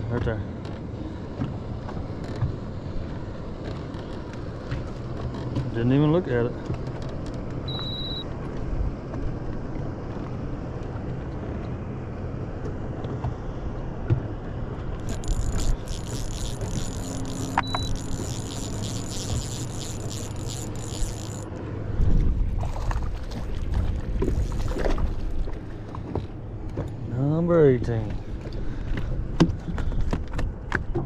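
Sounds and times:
steady low hum: 0:00.0 - 0:30.7
short high electronic beep: 0:07.7 - 0:08.2, 0:17.3 - 0:18.2
fishing reel whirring: 0:15.0 - 0:21.6, 0:24.2 - 0:25.2.

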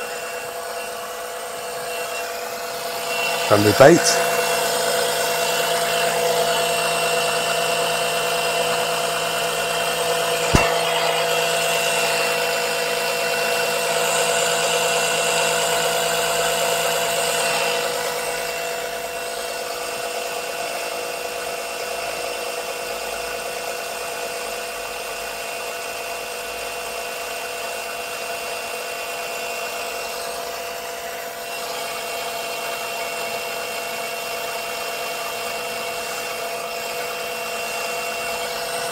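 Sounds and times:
electric suction pump whining: 0:00.0 - 0:21.2, 0:30.1 - 0:38.9.

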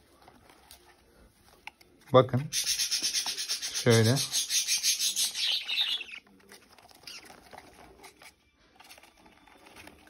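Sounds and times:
budgerigar chicks chattering: 0:02.5 - 0:06.2.

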